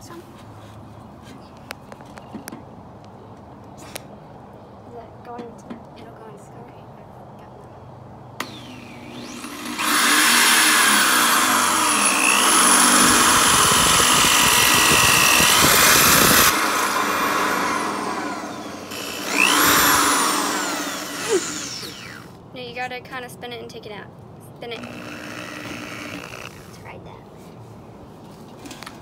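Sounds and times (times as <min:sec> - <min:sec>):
electric drill boring through metal: 0:08.4 - 0:22.4, 0:24.8 - 0:26.7.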